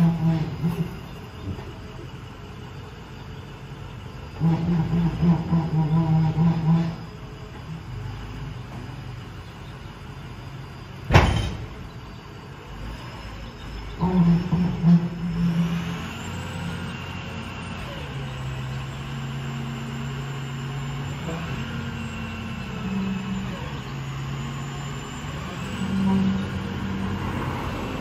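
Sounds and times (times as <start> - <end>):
diesel truck engine running: 0.0 - 28.0
sharp loud bang: 11.1 - 11.7.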